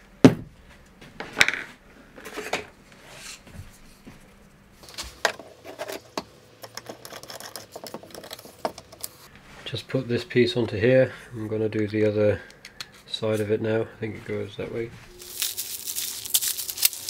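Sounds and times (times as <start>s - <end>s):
acrylic parts knocking and scraping: 5.2s - 9.3s.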